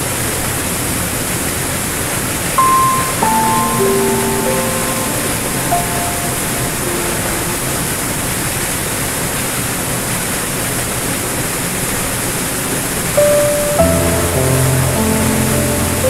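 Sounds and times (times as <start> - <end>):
soft piano notes: 2.6 - 8.7, 13.1 - 16.0.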